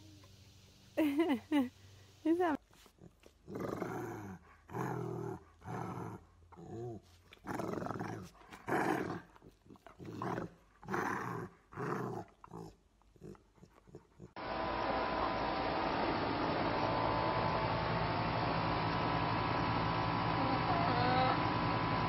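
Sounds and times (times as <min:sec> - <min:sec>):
dog growling: 0:03.0 - 0:14.4.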